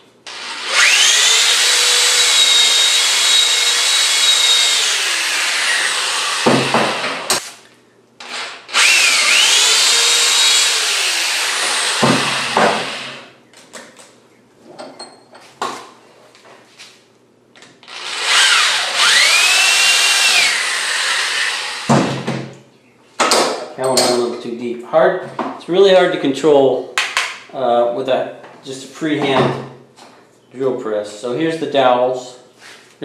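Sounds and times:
electric drill whining: 0.2s - 7.4s, 8.2s - 13.3s, 17.8s - 22.0s.

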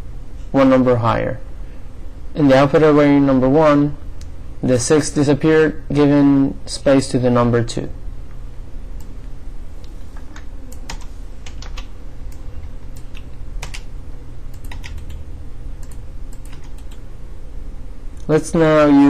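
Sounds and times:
steady low hum: 0.0s - 19.0s
keyboard and mouse clicks: 14.5s - 15.2s, 15.8s - 17.0s.

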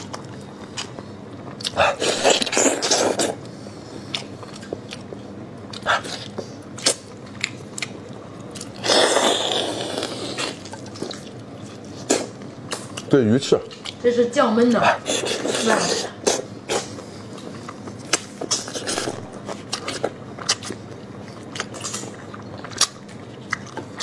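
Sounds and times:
chewing with wet clicks: 0.0s - 1.8s, 4.1s - 8.8s, 10.5s - 14.0s, 17.4s - 24.0s.

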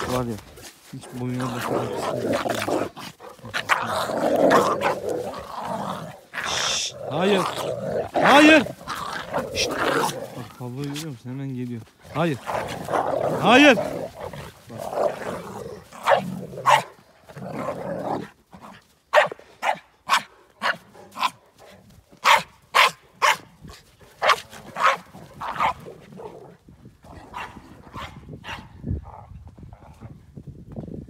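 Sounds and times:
dogs barking: 16.0s - 17.0s, 19.1s - 21.4s, 22.2s - 23.5s, 24.2s - 25.9s, 27.3s - 28.7s.

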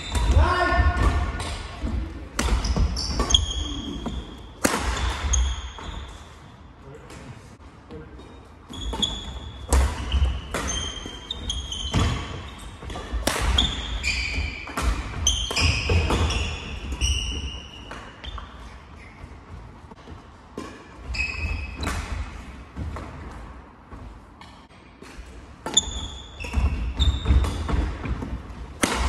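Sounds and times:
sneakers squeaking on wooden floor: 0.0s - 6.5s, 8.1s - 22.4s, 25.6s - 28.4s
rackets striking shuttlecock: 4.6s - 5.9s, 11.9s - 16.3s, 28.8s - 29.0s.

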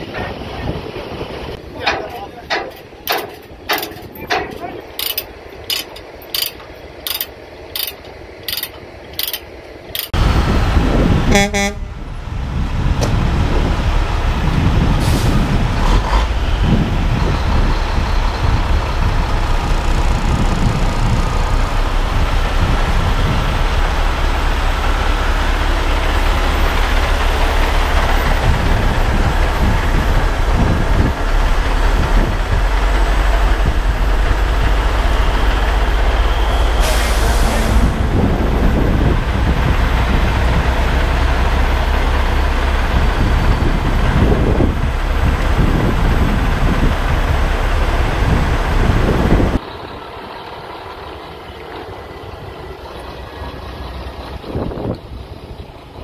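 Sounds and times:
diesel truck engines rumbling: 0.0s - 56.0s
regular clicking: 1.9s - 10.2s.

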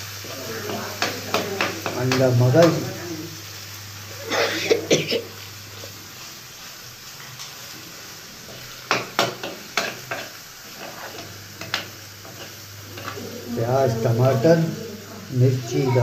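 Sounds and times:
faint sizzle: 0.0s - 16.0s
metal spoon scraping frying pan: 8.5s - 13.3s.

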